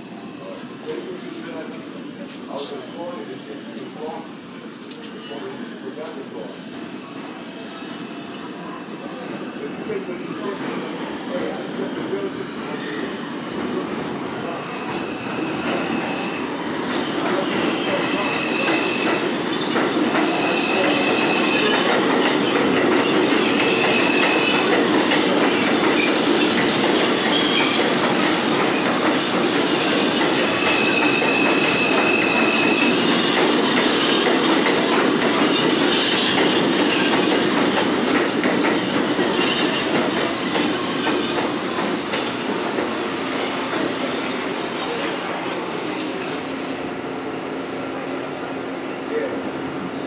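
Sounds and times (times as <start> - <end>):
train wheels rumbling on rail: 0.0 - 50.0
high wheel squeal: 14.6 - 24.9, 25.6 - 34.2.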